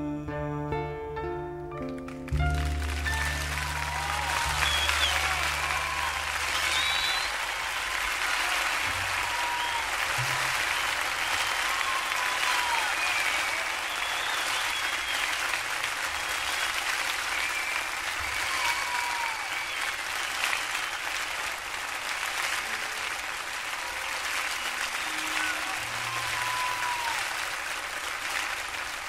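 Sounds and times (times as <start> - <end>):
audience applauding: 1.8 - 29.0
faint calls and whistles: 6.6 - 7.4.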